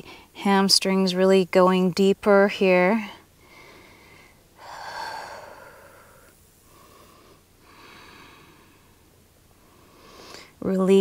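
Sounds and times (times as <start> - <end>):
woman breathing slowly: 3.2 - 10.6.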